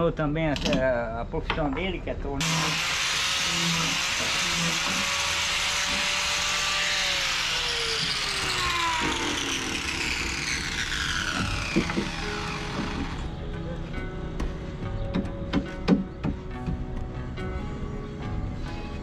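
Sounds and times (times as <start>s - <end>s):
angle grinder sanding wood: 2.4s - 13.3s.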